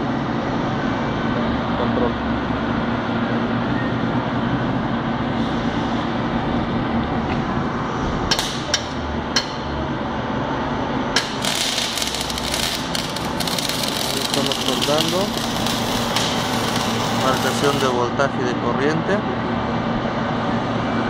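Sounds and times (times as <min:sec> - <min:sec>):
steady background hum: 0:00.0 - 0:21.0
welding arc crackling: 0:11.1 - 0:18.0.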